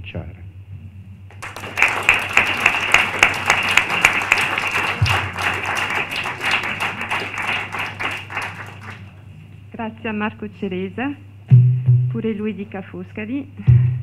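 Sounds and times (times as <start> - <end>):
audience applauding: 1.3 - 9.2.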